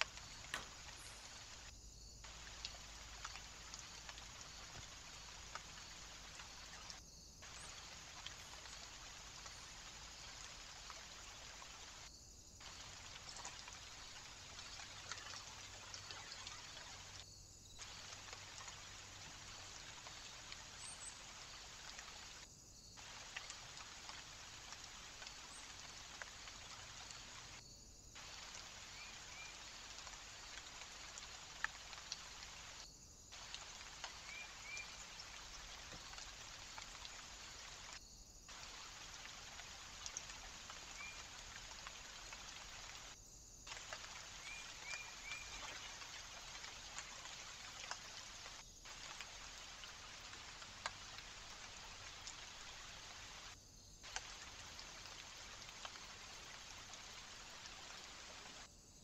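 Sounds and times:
light ticks: 0:00.0 - 0:01.7, 0:02.3 - 0:07.0
faint bird chirps: 0:00.0 - 0:27.6, 0:28.2 - 0:47.4
faint outdoor hiss: 0:00.0 - 0:59.0.

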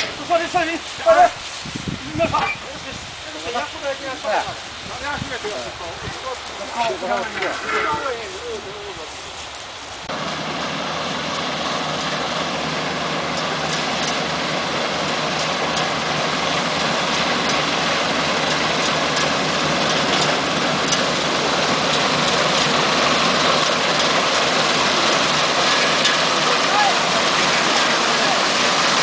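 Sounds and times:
combine harvester hum and rattle: 0:00.0 - 0:29.0.

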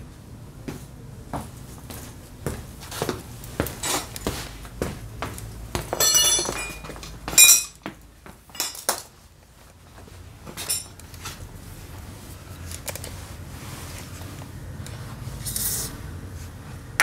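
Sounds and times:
metal tools clinking: 0:06.0 - 0:07.8, 0:08.5 - 0:09.1, 0:10.6 - 0:11.0.

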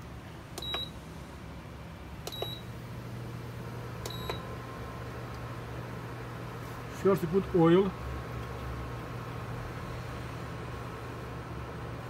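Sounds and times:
low cooker hum: 0:00.0 - 0:12.0
cooktop beeping: 0:04.0 - 0:04.5.

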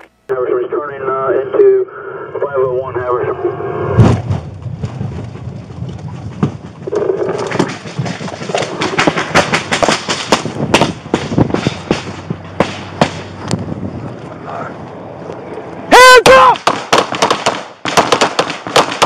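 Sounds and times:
gear knocking on camera: 0:04.1 - 0:13.2.

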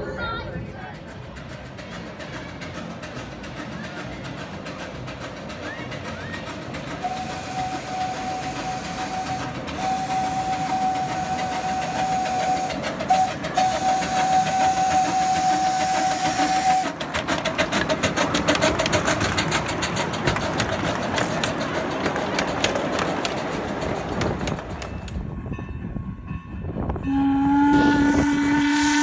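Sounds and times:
train rhythmic beat and hiss: 0:00.1 - 0:29.0
steam locomotive whistle: 0:05.6 - 0:17.0, 0:27.0 - 0:29.0.

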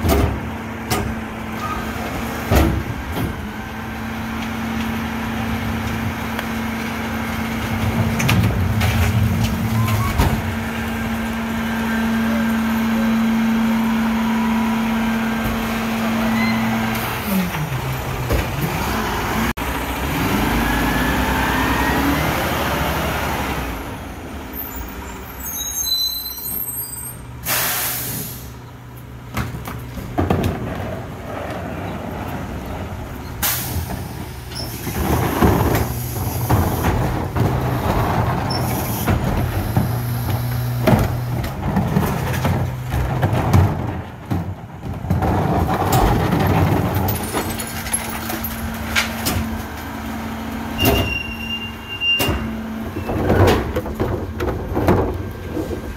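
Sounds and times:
hydraulics humming: 0:00.0 - 0:25.5
diesel engine running: 0:00.0 - 0:25.6, 0:26.5 - 0:55.9
air brake hiss: 0:27.4 - 0:28.6.

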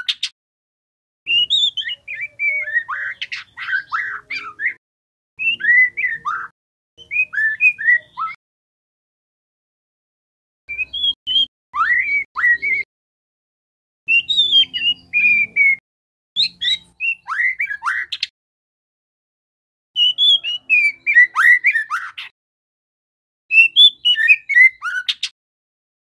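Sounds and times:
bird singing chirps and whistles: 0:00.0 - 0:00.3, 0:01.3 - 0:04.8, 0:05.4 - 0:08.4, 0:10.7 - 0:12.9, 0:14.1 - 0:15.8, 0:16.4 - 0:18.3, 0:20.0 - 0:22.3, 0:23.5 - 0:25.4.

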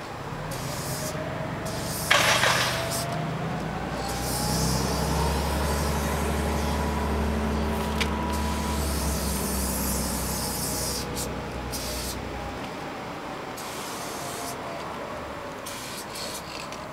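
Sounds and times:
aerosol spray paint hissing: 0:00.5 - 0:03.1, 0:04.0 - 0:06.0, 0:08.3 - 0:12.2, 0:13.6 - 0:14.5, 0:15.7 - 0:16.7
large vehicle engine running: 0:01.1 - 0:11.6.

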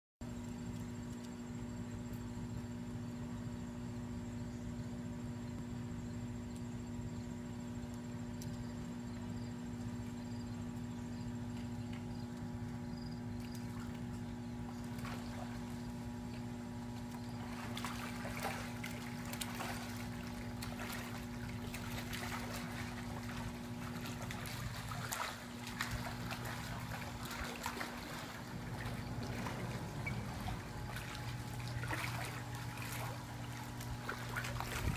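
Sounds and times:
steady low hum: 0:00.2 - 0:34.9
pool water splashing: 0:13.3 - 0:34.9.

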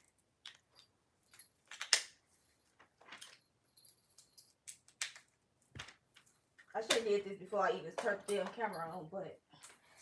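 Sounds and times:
small metal items jingling: 0:00.0 - 0:04.8, 0:07.6 - 0:10.0.

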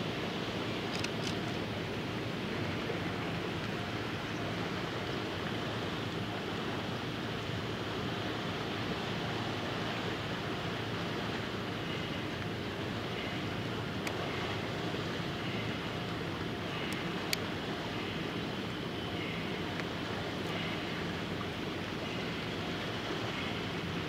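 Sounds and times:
wind: 0:00.0 - 0:24.0
faint ticks: 0:14.0 - 0:14.2, 0:16.8 - 0:17.5, 0:19.7 - 0:20.6.

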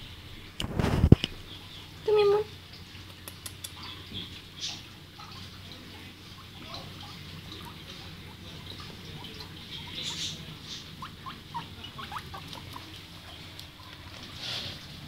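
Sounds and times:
soft rustles: 0:00.6 - 0:01.3, 0:12.4 - 0:15.0
guinea pig squeaking: 0:06.3 - 0:14.5.

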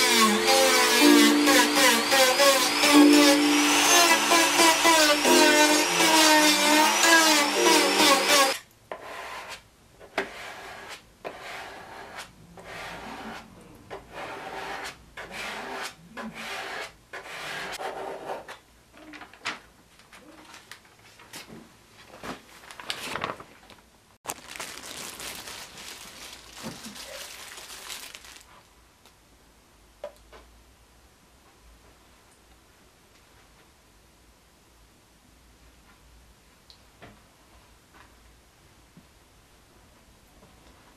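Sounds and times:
rotary sanding tool whining: 0:00.0 - 0:08.6.

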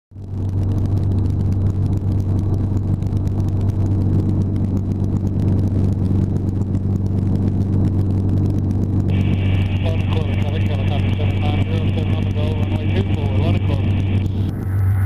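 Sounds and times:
helicopter engine and rotor droning: 0:00.3 - 0:15.0.

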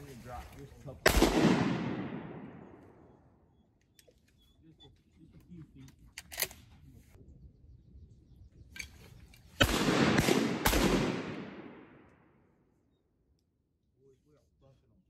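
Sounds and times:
shotgun blasts with echo: 0:01.0 - 0:03.1, 0:09.6 - 0:12.3.

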